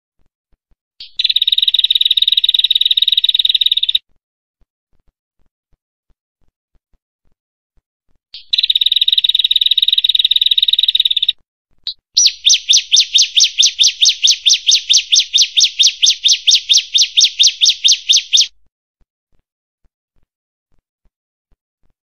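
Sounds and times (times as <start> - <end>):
small warbler singing: 1.0 - 4.0, 8.4 - 11.3, 11.9 - 18.5.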